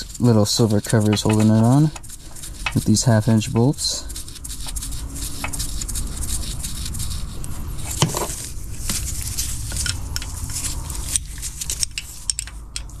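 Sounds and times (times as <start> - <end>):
wrench clicking and scraping on bolt: 0.8 - 4.8, 9.6 - 13.0.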